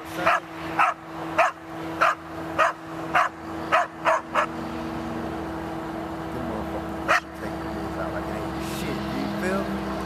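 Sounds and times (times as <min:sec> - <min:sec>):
dog barking: 0:00.2 - 0:04.5, 0:07.1 - 0:07.3.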